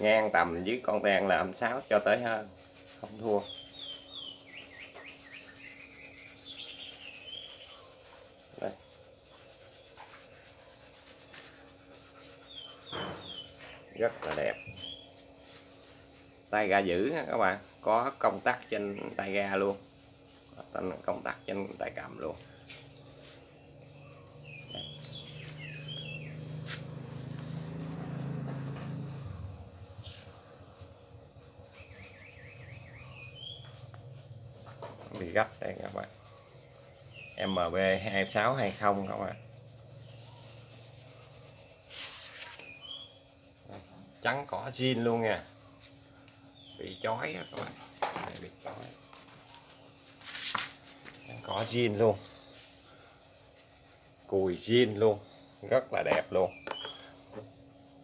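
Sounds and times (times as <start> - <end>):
crickets trilling: 0.0 - 58.0
short chirping calls: 24.0 - 26.8, 56.3 - 57.2
bird falling chirps: 56.6 - 57.1.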